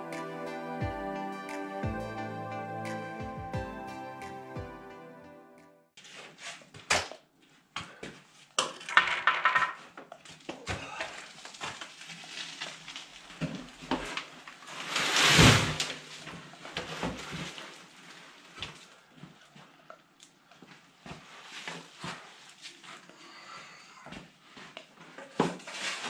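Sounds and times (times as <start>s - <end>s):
concrete sliding out with scrape: 11.3s - 17.8s.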